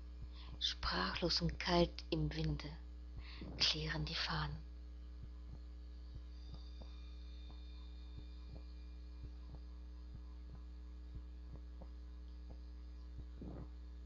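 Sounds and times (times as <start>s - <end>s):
electrical mains hum: 0.0s - 14.0s
faint ticks: 5.2s - 13.7s.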